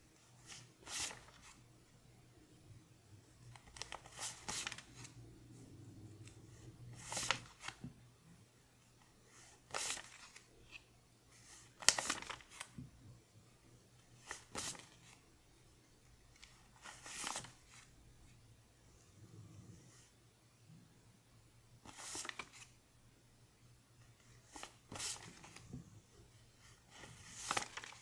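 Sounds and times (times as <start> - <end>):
paper bills rustling: 0.4 - 1.6, 3.5 - 5.2, 6.3 - 7.8, 9.6 - 10.8, 11.6 - 12.7, 14.2 - 15.2, 21.9 - 22.8, 24.4 - 25.7, 26.9 - 28.0.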